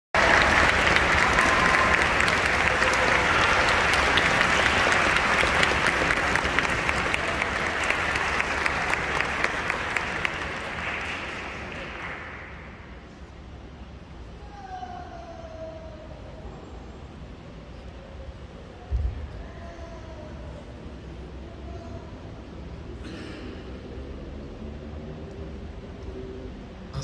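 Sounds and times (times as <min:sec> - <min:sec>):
audience applauding: 0:00.1 - 0:12.8.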